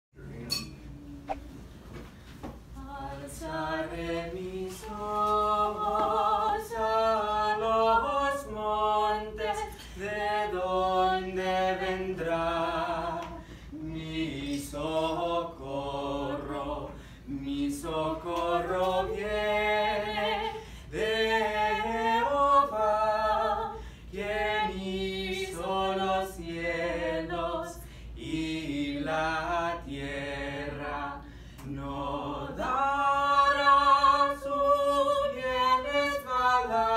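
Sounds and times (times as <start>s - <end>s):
woman singing: 2.8s - 11.4s, 32.6s - 36.9s.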